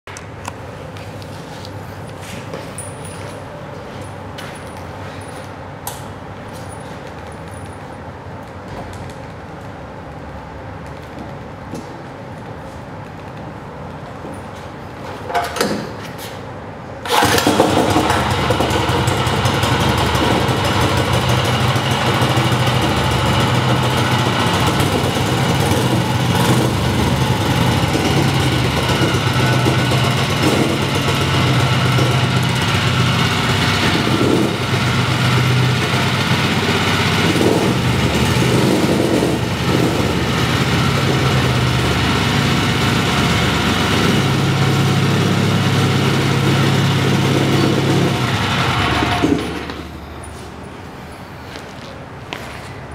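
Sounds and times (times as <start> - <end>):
small engine running: 17.1 - 50.0.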